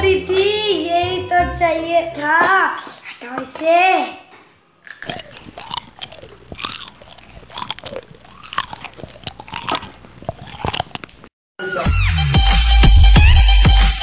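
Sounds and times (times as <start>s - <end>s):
crunching dry noodles: 4.8s - 11.3s.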